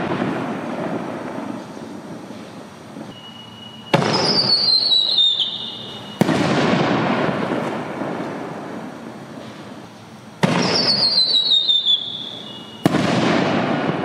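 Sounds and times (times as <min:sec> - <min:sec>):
firework crackle: 0:00.0 - 0:14.0
shrill firework whistle: 0:03.1 - 0:06.9, 0:10.4 - 0:13.7
firework launch thump: 0:03.9 - 0:04.6, 0:06.2 - 0:08.6, 0:12.8 - 0:14.0
firework shell bang: 0:03.9 - 0:09.8, 0:10.4 - 0:14.0.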